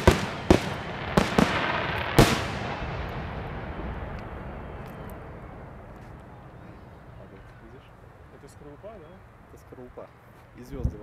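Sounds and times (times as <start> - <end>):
firework shells banging: 0.0 - 8.6
rumbling echo: 0.0 - 8.9.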